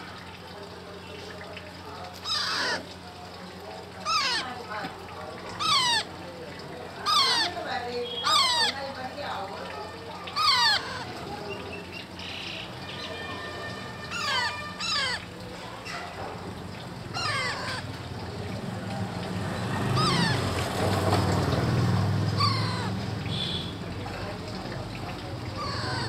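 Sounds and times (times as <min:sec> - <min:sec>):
parakeet chicks squawking: 0:02.1 - 0:02.9, 0:04.0 - 0:04.8, 0:05.5 - 0:06.2, 0:06.8 - 0:16.4, 0:17.1 - 0:18.0, 0:19.5 - 0:20.6, 0:22.3 - 0:23.8, 0:25.4 - 0:26.0.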